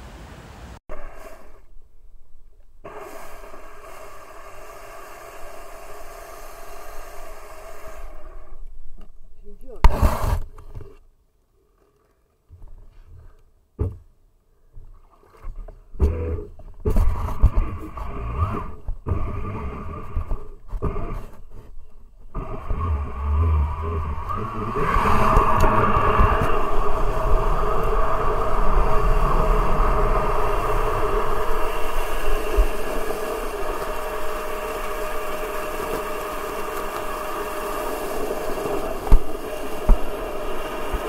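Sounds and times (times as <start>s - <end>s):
electric jet pump whine: 0.9s - 9.1s, 16.0s - 41.0s
rushing water from jet: 23.8s - 41.0s.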